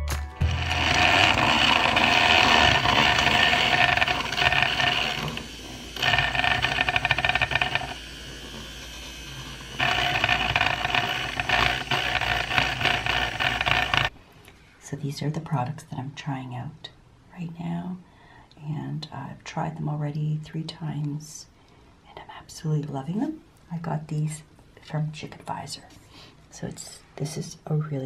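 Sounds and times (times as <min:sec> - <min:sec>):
appliance electric motor running: 0:00.4 - 0:14.2.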